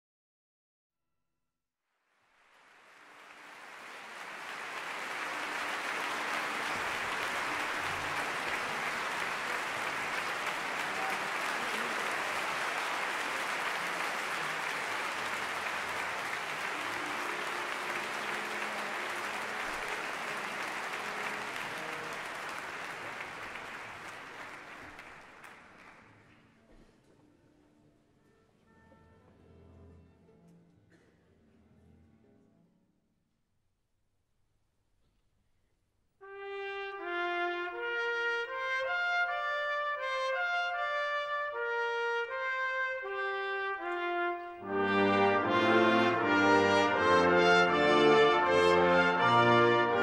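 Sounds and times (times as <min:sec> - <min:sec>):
audience applauding: 0:02.2 - 0:26.4.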